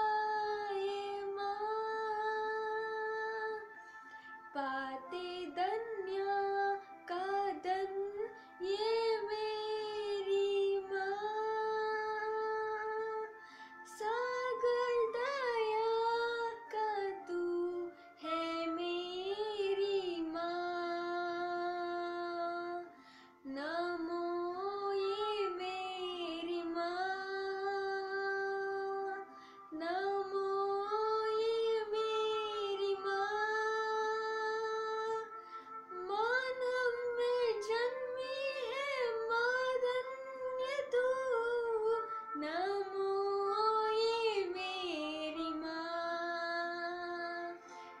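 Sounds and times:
woman singing a hymn: 0:00.0 - 0:03.7, 0:04.5 - 0:47.6.

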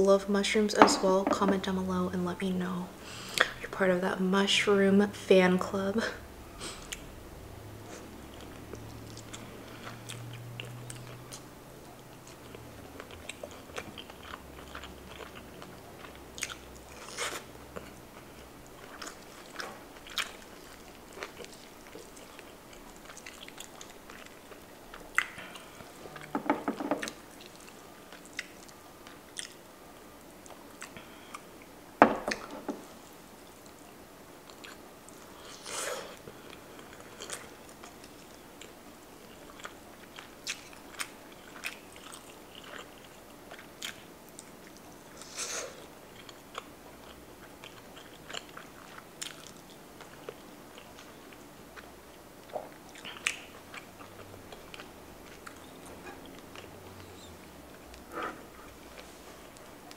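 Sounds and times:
chewing mouth sounds: 0:07.9 - 0:26.3, 0:27.0 - 0:29.6, 0:36.5 - 0:44.9, 0:46.1 - 0:59.9.

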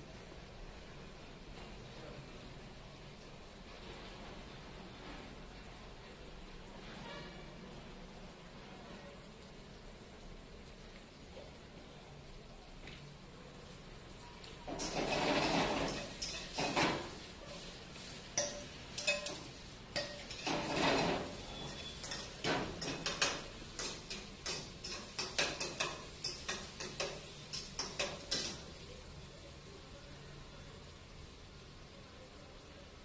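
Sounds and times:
metal spatula scraping a wok: 0:06.8 - 0:07.5, 0:14.7 - 0:28.8.

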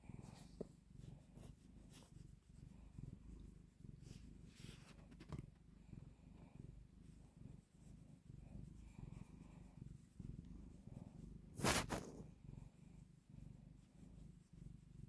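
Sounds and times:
cat purring: 0:00.0 - 0:15.0
loud rustle: 0:11.6 - 0:12.2.

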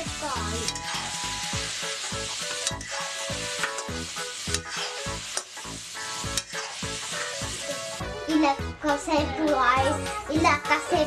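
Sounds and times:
food sizzling in hot oil: 0:00.0 - 0:08.6
background music with steady beat: 0:00.0 - 0:11.0
metal ladle stirring: 0:00.6 - 0:07.9.

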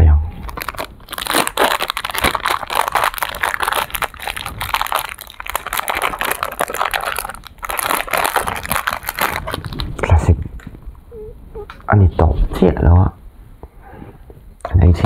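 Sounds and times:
plastic wrapper crinkling: 0:00.4 - 0:10.8.

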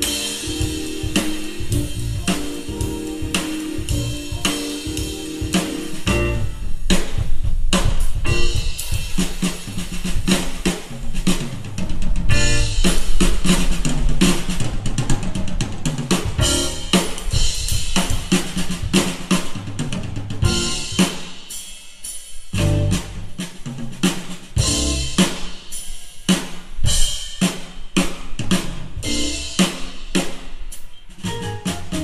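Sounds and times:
live funk band playing: 0:00.0 - 0:11.7, 0:12.3 - 0:15.1, 0:16.0 - 0:23.5, 0:24.6 - 0:27.5, 0:28.5 - 0:32.0
snare and bass drum hits: 0:00.0 - 0:14.6, 0:16.1 - 0:19.6, 0:20.4 - 0:21.4, 0:22.6 - 0:23.4, 0:24.0 - 0:25.7.

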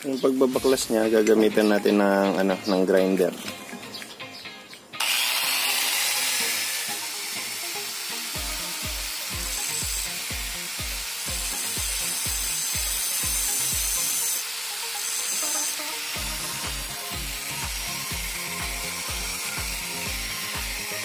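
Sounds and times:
faint background music beat: 0:00.0 - 0:21.0
angle grinder grinding metal: 0:05.0 - 0:21.0.

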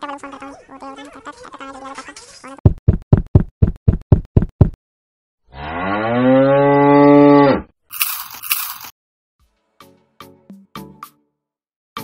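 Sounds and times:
cow mooing: 0:05.5 - 0:07.6.

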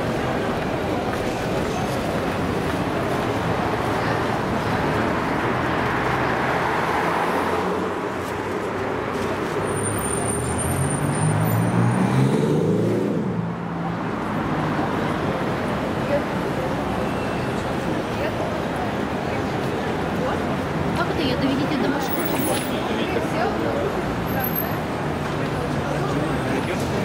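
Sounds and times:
street traffic: 0:00.0 - 0:27.0
vehicle engine accelerating: 0:10.4 - 0:13.6.

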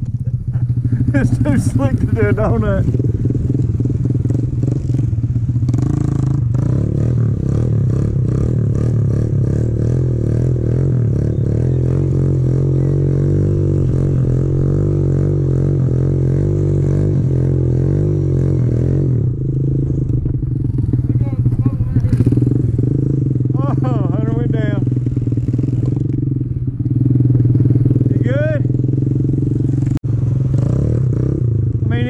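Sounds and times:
pit bike engine revving: 0:00.0 - 0:32.0.

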